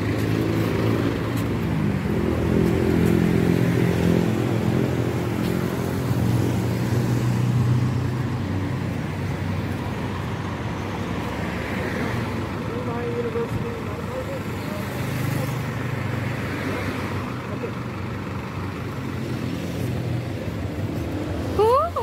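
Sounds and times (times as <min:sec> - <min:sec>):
truck engine running: 0:00.0 - 0:06.6, 0:17.0 - 0:22.0
street traffic: 0:00.0 - 0:22.0.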